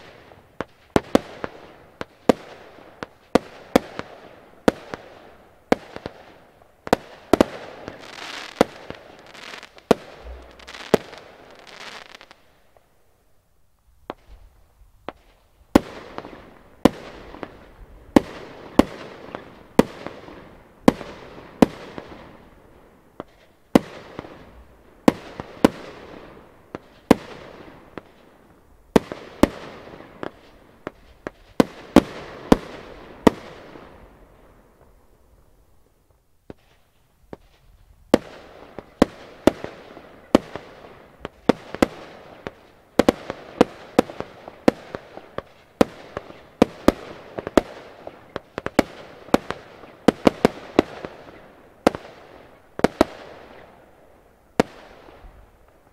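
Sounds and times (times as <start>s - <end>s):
crackling hiss of bursting shells: 5.7s - 12.9s, 36.1s - 53.8s
small firework pops: 5.7s - 12.9s, 14.0s - 20.2s, 23.2s - 26.0s, 26.7s - 33.9s, 34.8s - 53.8s, 54.6s - 55.9s
fireworks bangs: 6.9s - 12.4s.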